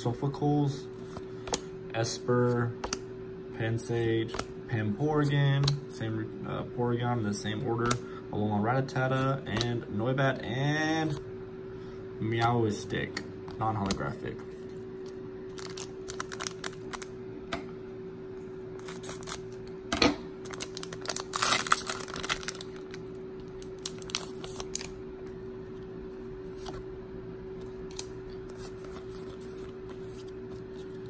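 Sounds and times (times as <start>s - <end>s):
faint hum: 0.0s - 31.0s
foil wrapper tearing and crinkling: 15.5s - 17.1s, 18.8s - 19.6s, 20.5s - 25.0s.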